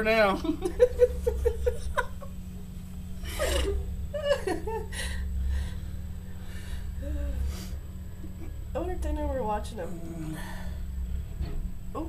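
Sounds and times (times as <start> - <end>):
steady low hum: 0.0 - 12.0
person chuckling and laughing: 0.6 - 2.3, 3.2 - 5.3.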